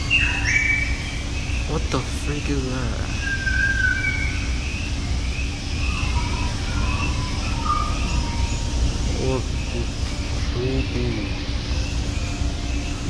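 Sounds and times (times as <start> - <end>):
faint high chirps and whistles: 0.0 - 13.0
low background rumble: 0.0 - 13.0.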